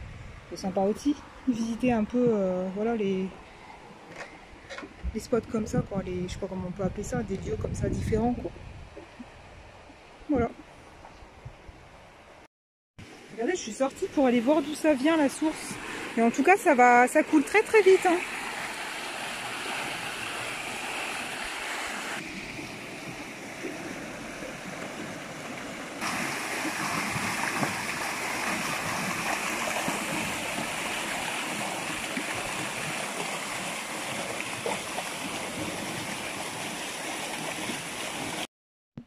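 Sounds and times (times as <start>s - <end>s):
spring water rushing: 14.0s - 38.5s.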